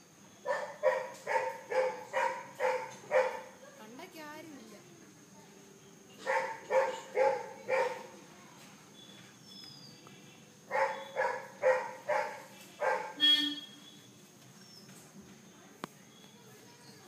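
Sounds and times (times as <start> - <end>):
dog barking: 0.4 - 3.5, 6.2 - 8.1, 10.7 - 13.4.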